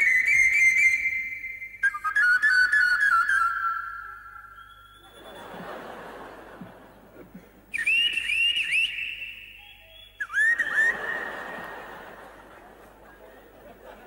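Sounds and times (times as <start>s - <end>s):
pan flute with pitch bends: 7.7s - 11.1s.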